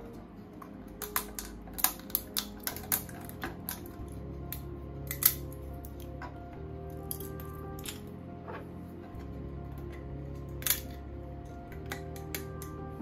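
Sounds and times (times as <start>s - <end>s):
background music: 0.0s - 13.0s
plastic snaps and clicks: 1.0s - 6.1s, 10.6s - 11.0s.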